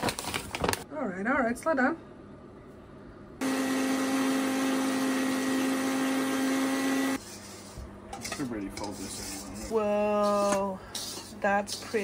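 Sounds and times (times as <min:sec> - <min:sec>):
stand mixer motor hum: 0:03.4 - 0:07.2.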